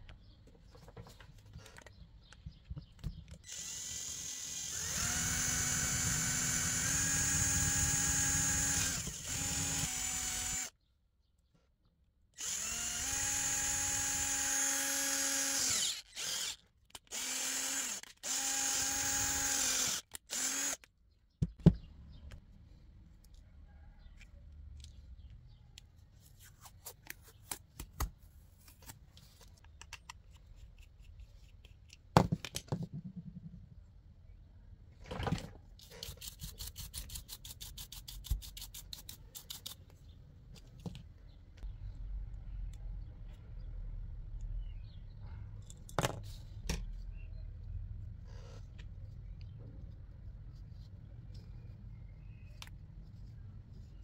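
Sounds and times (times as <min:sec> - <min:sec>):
electric drill whining: 0:03.5 - 0:10.7, 0:12.4 - 0:20.8.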